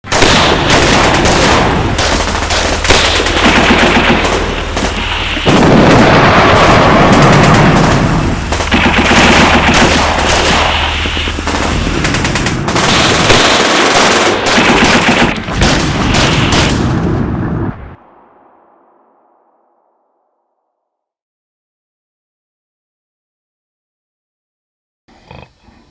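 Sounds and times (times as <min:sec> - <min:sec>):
machine-gun and rifle fire: 0:00.1 - 0:17.6
gunfire echo: 0:00.1 - 0:20.0.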